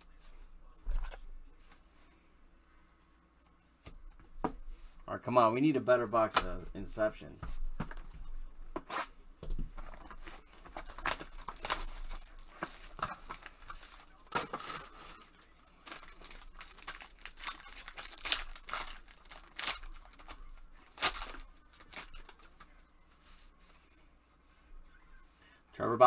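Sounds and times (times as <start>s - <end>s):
foil wrapper crackling and tearing: 10.2s - 22.8s.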